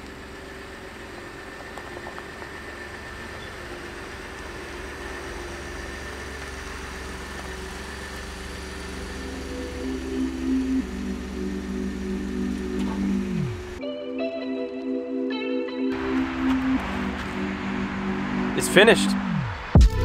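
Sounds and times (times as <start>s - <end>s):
truck engine hum: 0.0s - 13.9s, 15.9s - 20.0s
music: 9.3s - 20.0s.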